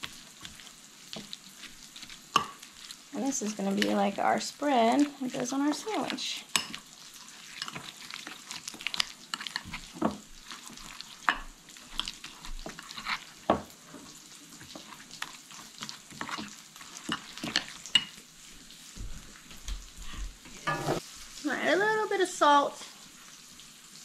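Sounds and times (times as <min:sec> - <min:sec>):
bacon sizzling in a pan: 0:00.0 - 0:24.0
spoon scraping glass bowl: 0:20.6 - 0:21.0.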